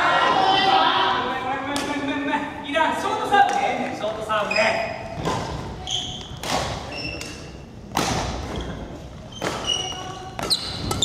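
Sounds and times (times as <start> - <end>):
shoes squeaking on wooden floor: 4.4 - 7.3, 8.4 - 11.0
racket hitting shuttlecock: 5.2 - 8.8, 9.4 - 11.0.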